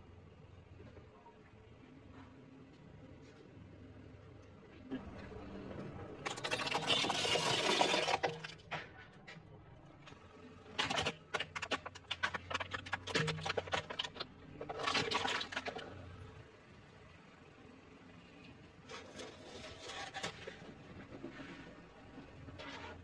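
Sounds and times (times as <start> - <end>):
plastic toys crunching: 6.2 - 8.7, 10.8 - 16.2
plastic cracking and snapping: 10.8 - 15.9.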